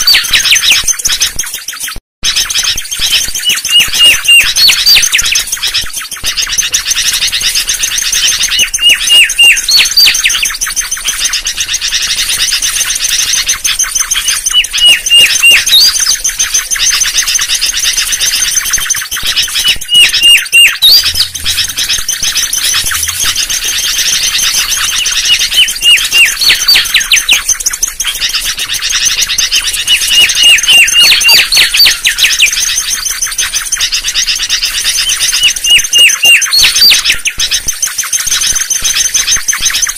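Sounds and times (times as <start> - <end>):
bird whistling descending notes: 0.0 - 11.2, 12.4 - 34.0
fast high chirping: 0.0 - 39.9.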